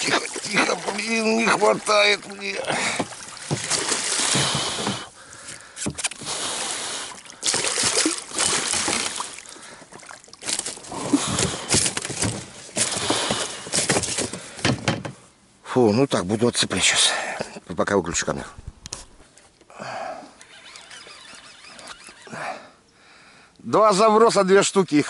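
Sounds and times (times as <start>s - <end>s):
water splashing and sloshing: 0.0s - 15.0s.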